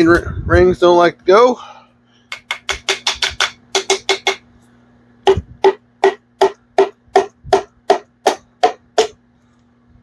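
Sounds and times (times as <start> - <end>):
hammer handle tapping piston: 2.3 - 4.4.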